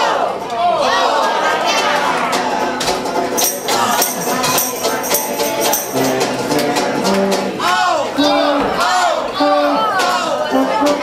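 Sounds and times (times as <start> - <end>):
strummed banjo: 1.2 - 11.0
tuba playing bass notes: 3.7 - 7.6, 8.2 - 11.0.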